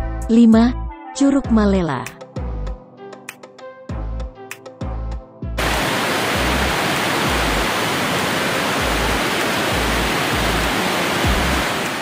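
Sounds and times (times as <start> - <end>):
low background music beat: 2.1 - 5.5
waterfall rushing: 5.6 - 12.0.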